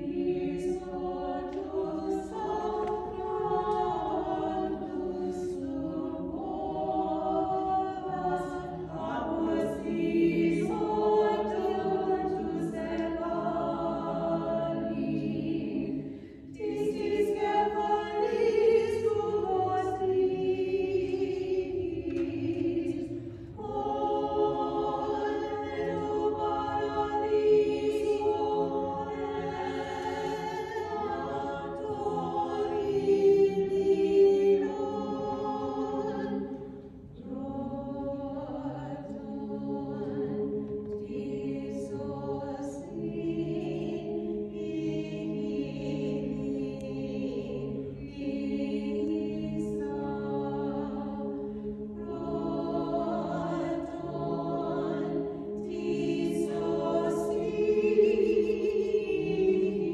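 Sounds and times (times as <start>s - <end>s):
choir singing chant: 0.0s - 59.9s.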